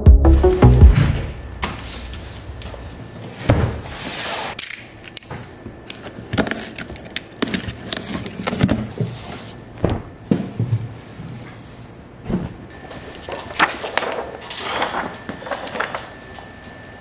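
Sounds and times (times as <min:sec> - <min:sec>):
cardboard box being unpacked: 0:06.4 - 0:09.2.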